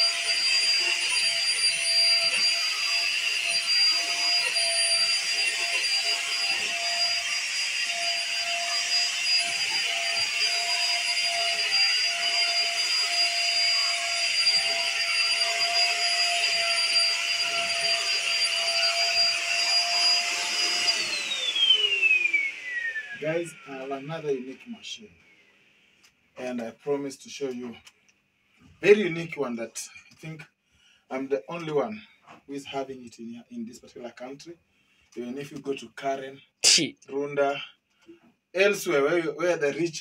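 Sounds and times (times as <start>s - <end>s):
vacuum cleaner motor whine: 0.0s - 24.7s.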